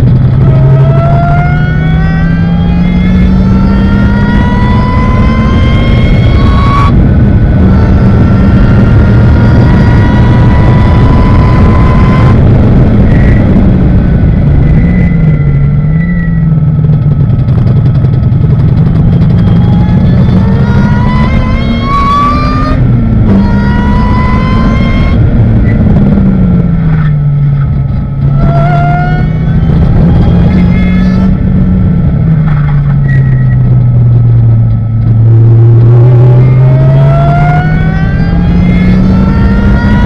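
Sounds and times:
race car engine under load: 0.0 - 40.0.

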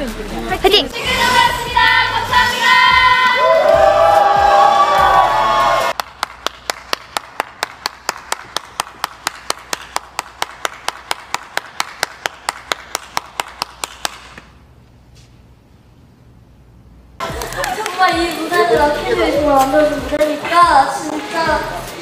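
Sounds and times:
crowd singing over music: 0.9 - 3.5
person clapping: 5.9 - 14.5, 17.2 - 18.5.

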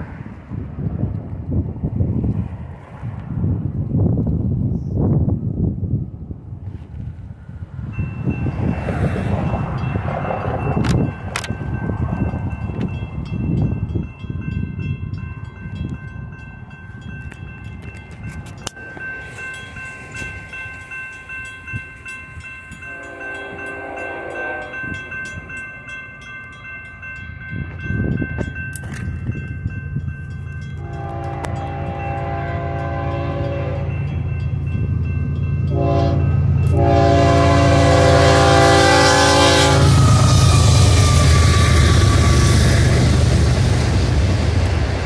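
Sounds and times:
train rumble and wheels: 0.0 - 45.0
railroad crossing bell ringing: 7.7 - 45.0
locomotive air horn: 22.9 - 25.0, 30.8 - 34.0, 35.7 - 43.2.

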